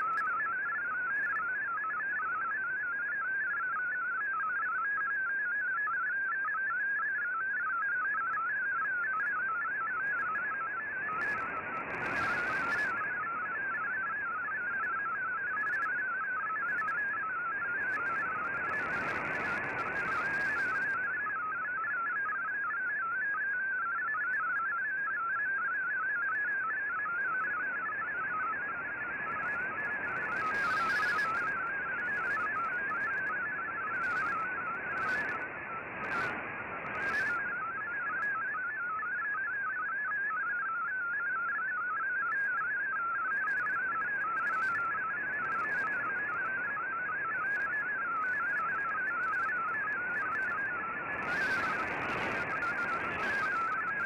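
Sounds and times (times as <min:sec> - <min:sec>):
radio crackles: 0:08.8 - 0:21.8, 0:26.6 - 0:39.0, 0:42.3 - 0:54.0.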